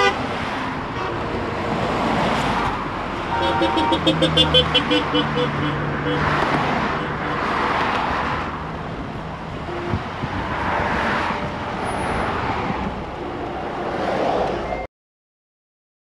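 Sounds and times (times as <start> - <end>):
passing traffic: 0.0 - 14.9
tyre and wind noise: 8.3 - 13.0.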